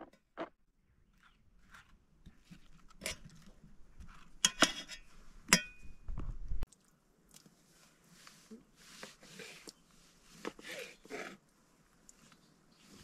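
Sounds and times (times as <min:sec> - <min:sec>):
fork clinking metal bowl: 0:04.4 - 0:05.8.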